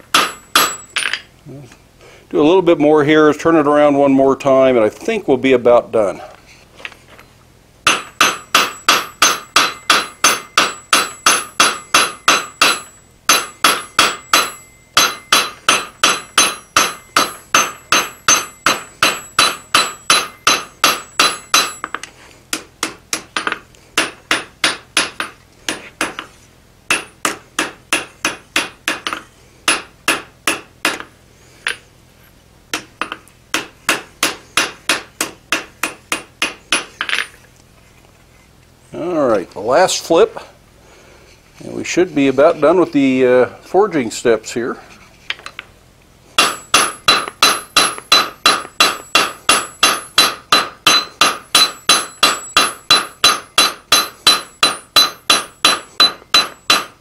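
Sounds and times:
hammer ringing on anvil: 0.2 - 1.2, 7.9 - 22.0, 46.4 - 57.0.

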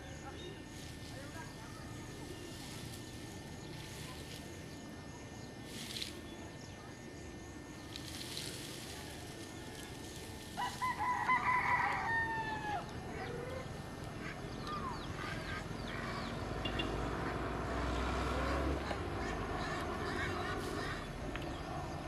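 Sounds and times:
rooster crowing: 10.6 - 13.7.

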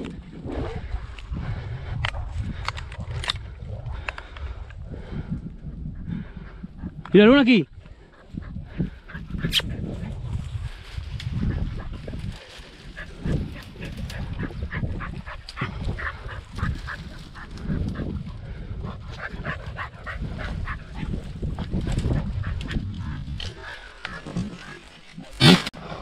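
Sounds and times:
low rumble: 8.0 - 25.0
hounds yelping: 19.0 - 25.1.

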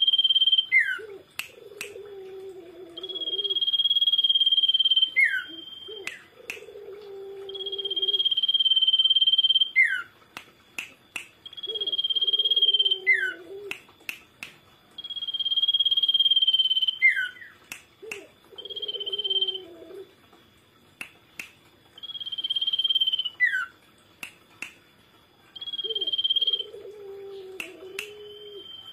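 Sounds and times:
sharp clicks: 10.4 - 11.4, 13.7 - 14.7, 17.6 - 18.3, 21.0 - 21.8, 24.2 - 24.8.

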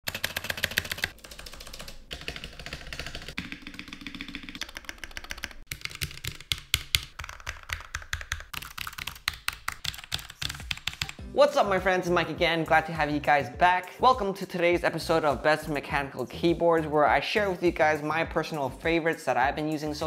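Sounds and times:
fast mechanical keyboard typing: 0.0 - 11.2.

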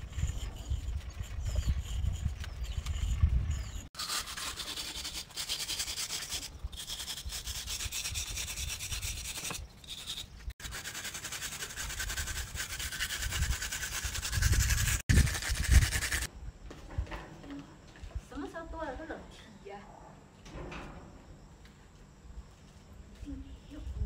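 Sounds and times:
chalk scratching on concrete: 0.0 - 16.3.

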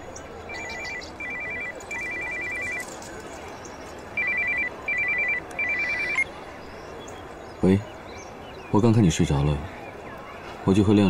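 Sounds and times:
mobile phone ringing: 0.5 - 3.0, 4.1 - 6.3.

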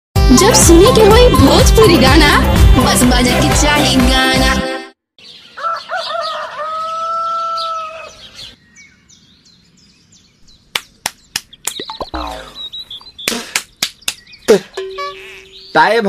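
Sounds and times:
rooster crowing: 5.5 - 8.4
faint bird chirps: 11.4 - 16.0.

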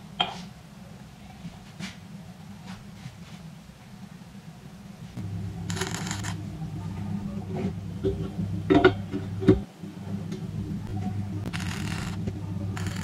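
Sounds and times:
steady low hum: 0.0 - 13.0
welding arc hiss: 5.7 - 6.3, 11.5 - 12.2, 12.8 - 13.0.

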